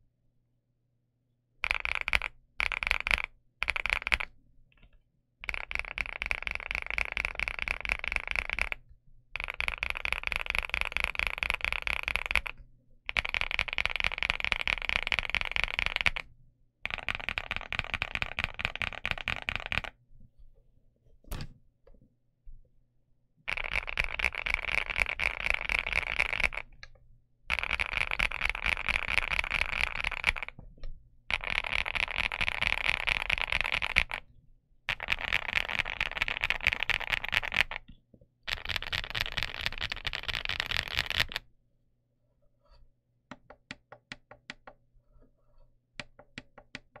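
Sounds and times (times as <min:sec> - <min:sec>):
fast typing on mechanical keyboard: 0:01.6 - 0:04.3, 0:05.4 - 0:08.8, 0:09.4 - 0:16.3, 0:16.9 - 0:19.9, 0:23.5 - 0:26.7, 0:27.5 - 0:30.6, 0:31.3 - 0:34.2, 0:34.9 - 0:37.8, 0:38.5 - 0:41.4.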